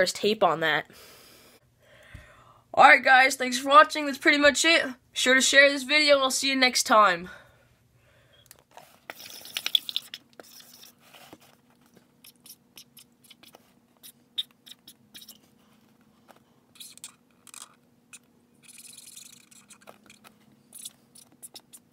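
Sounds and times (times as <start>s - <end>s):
marker scratching on cardboard: 9.1s - 11.5s, 12.2s - 15.5s, 16.8s - 21.9s.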